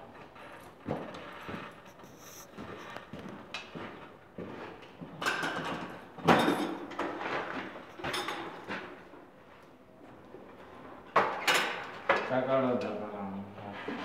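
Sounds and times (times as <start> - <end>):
plastic pipe scraping on concrete: 1.9 - 3.3.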